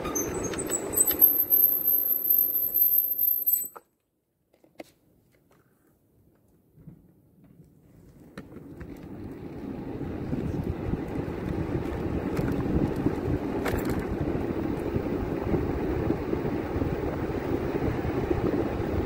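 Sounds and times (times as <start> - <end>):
vehicle road noise: 0.0 - 3.7, 8.2 - 19.0
rumbling wind: 8.6 - 19.0.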